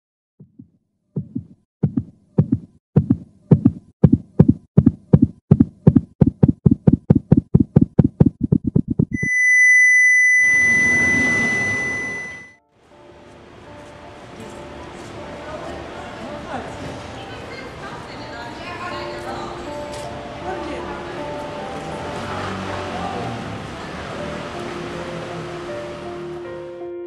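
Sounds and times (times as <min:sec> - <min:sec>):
heartbeat thumps: 0:00.4 - 0:09.2
high electronic flatline beep: 0:09.1 - 0:12.6.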